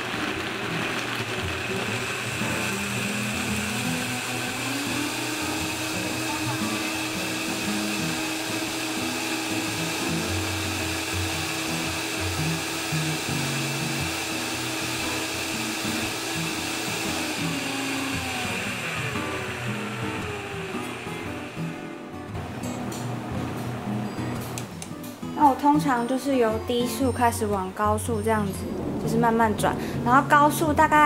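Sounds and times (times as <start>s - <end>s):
blender motor whirring: 0.0s - 24.7s.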